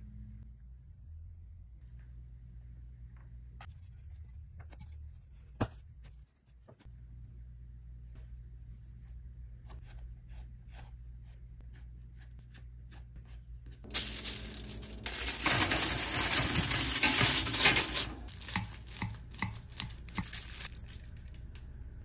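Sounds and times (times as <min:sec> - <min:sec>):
aluminium foil crinkling: 0:13.8 - 0:21.6.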